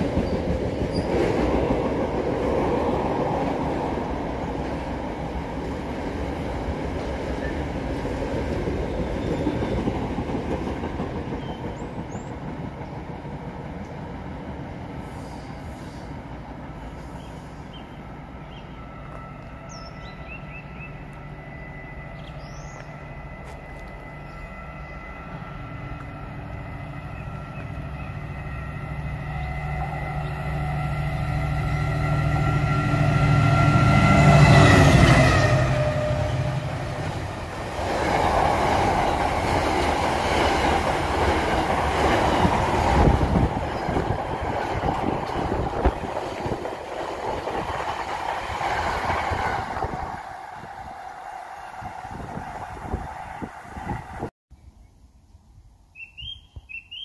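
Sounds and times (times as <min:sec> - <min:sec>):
locomotive hum and whine: 0:08.8 - 0:54.3.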